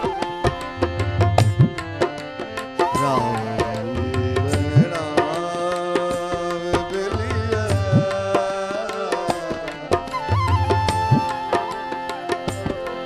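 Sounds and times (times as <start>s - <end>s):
sustained melodic line: 0.0s - 5.5s
tabla playing a busy rhythm: 0.0s - 13.0s.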